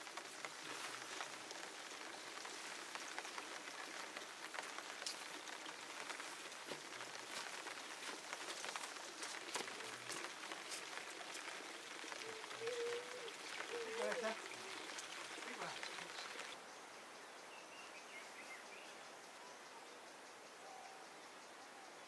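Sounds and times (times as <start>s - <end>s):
rain drips and ticks: 0.0s - 16.6s
light rain pattering: 0.0s - 20.6s.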